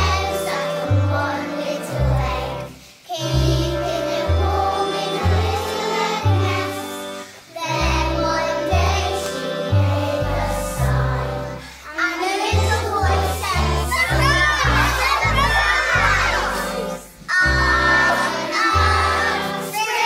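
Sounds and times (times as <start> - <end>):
children's choir singing: 0.0 - 20.0
backing music with bass line: 3.4 - 19.8.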